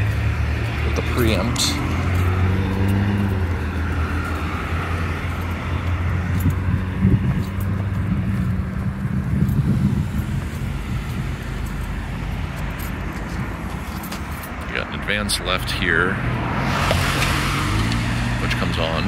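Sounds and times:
low engine hum: 0.0 - 14.8
cars driving past: 0.0 - 19.0.

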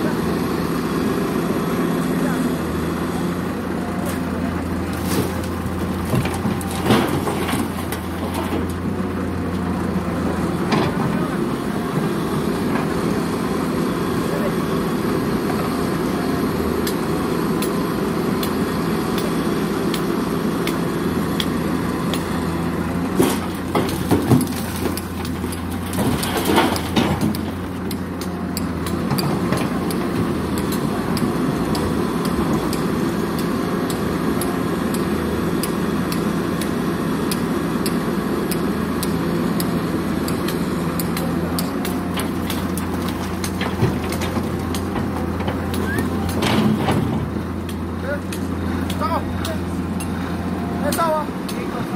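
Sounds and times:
diesel engines running: 0.0 - 51.9
soil and rock thudding into steel tipper: 4.9 - 8.8, 23.1 - 27.6.

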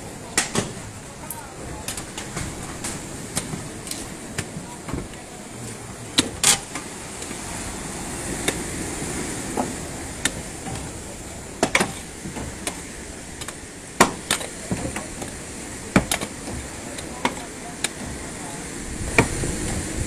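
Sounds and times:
surf rushing: 0.0 - 20.0
tools knocking and prying wood: 1.8 - 5.2, 6.2 - 6.8, 11.6 - 18.4, 19.0 - 19.8.

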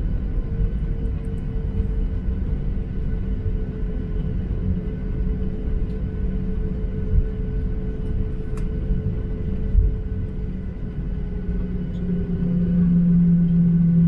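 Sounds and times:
jet engines humming: 0.0 - 14.0.

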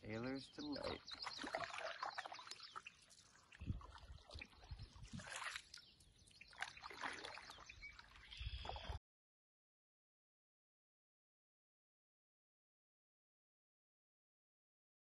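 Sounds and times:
water splashing off paddle: 1.1 - 5.8, 6.5 - 9.0.

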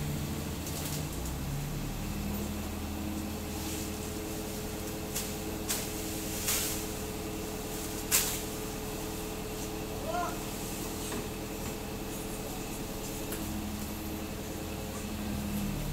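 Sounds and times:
truck engine running: 0.0 - 15.9
branches snapping: 4.8 - 6.9, 7.8 - 8.5.

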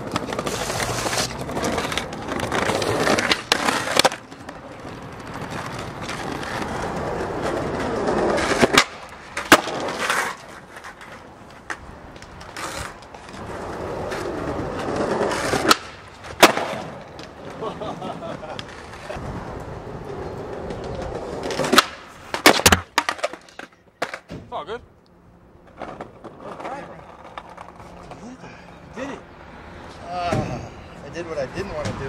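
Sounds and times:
skateboard wooden clacks: 0.0 - 19.7, 20.4 - 24.5
skateboard wheels rolling on pavement: 0.0 - 32.0.

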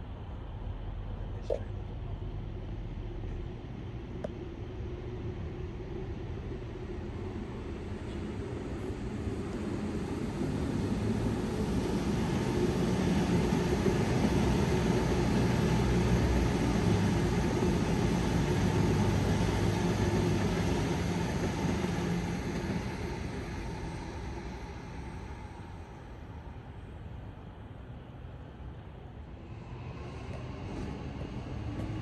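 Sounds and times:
tram passing rumble: 0.0 - 32.0.

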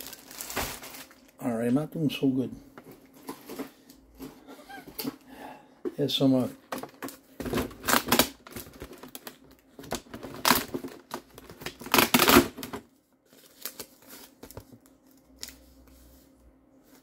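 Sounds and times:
plastic packaging crinkling: 0.0 - 1.8, 6.8 - 15.8.

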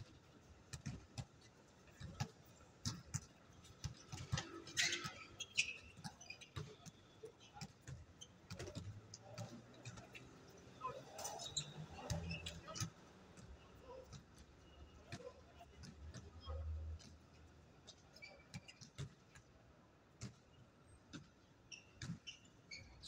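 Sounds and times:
basketball bouncing on court: 0.7 - 10.3, 15.1 - 17.2, 18.5 - 19.5, 21.9 - 22.4.

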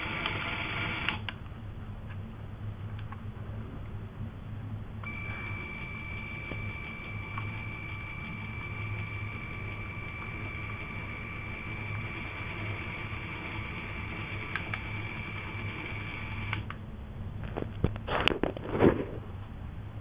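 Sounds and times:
electric motors whining: 5.0 - 16.8.

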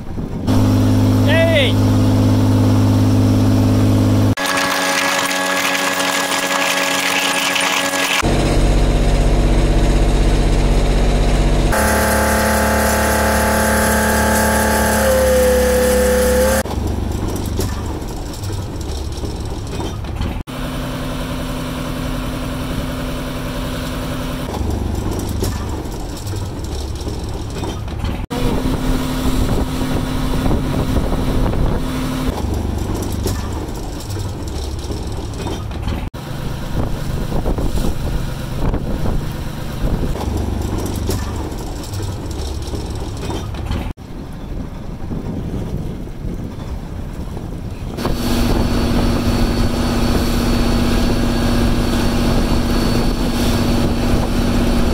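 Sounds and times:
rough noisy wash: 0.0 - 16.8, 48.0 - 54.9
boat engine droning: 0.0 - 27.7, 28.3 - 54.9.

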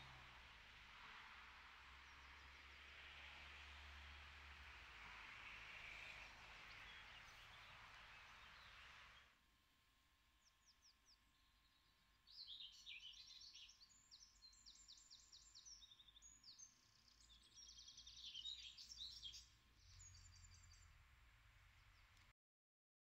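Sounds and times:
songbirds singing: 10.4 - 21.0.

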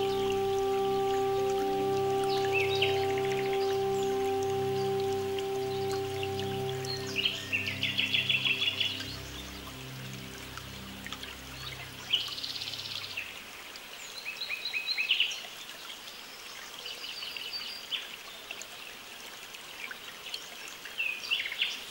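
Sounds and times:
songbirds singing: 0.0 - 13.4
low steady tones: 0.0 - 13.6.

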